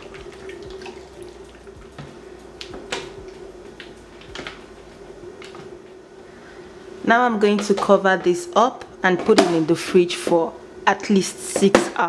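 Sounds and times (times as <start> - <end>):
liquid sloshing and dripping: 0.0 - 2.1
faint hum: 0.0 - 12.0.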